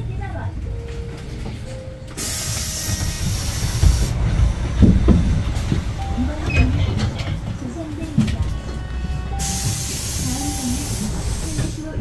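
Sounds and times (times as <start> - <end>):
bus engine and road rumble: 0.0 - 12.0
compressed air hiss: 2.2 - 4.1, 9.4 - 12.0
low thumps: 2.6 - 10.6.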